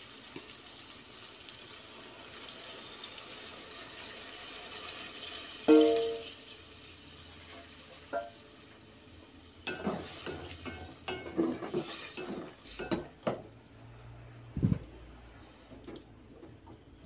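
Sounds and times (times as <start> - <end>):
spatula scraping pot: 11.1 - 12.9.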